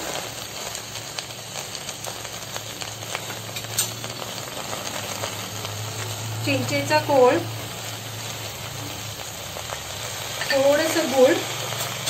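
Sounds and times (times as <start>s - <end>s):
small clicks and crackles: 0.0s - 6.6s
food sizzling in oil: 0.0s - 12.0s.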